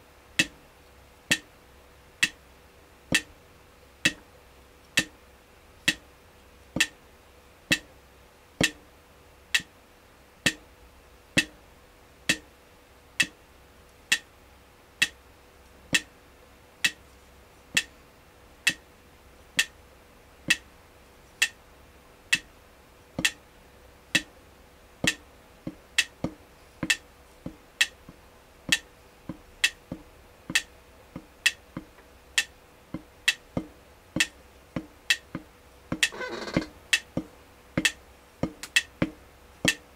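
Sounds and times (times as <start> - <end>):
drumstick striking drum pad: 0.4 - 0.6, 3.1 - 3.3, 4.0 - 4.2, 6.8 - 7.0, 8.6 - 8.8, 11.4 - 11.6, 23.2 - 23.4, 25.0 - 39.8.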